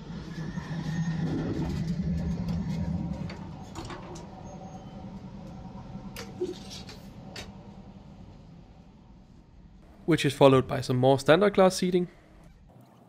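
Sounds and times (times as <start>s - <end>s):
steady train hum: 0.0s - 12.5s
train interior rumble: 0.0s - 12.7s
sliding door opening: 0.4s - 7.7s.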